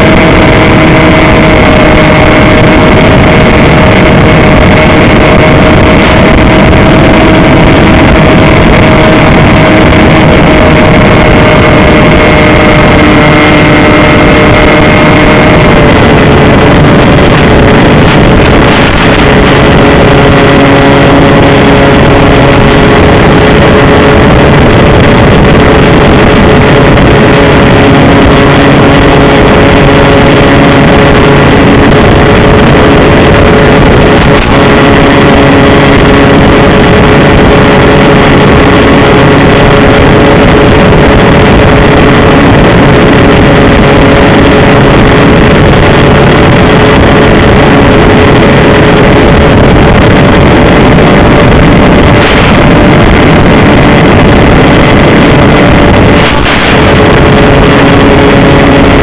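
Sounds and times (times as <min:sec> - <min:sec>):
model plane motor whine: 0:00.0 - 0:45.7
rushing air noise: 0:00.0 - 0:59.0.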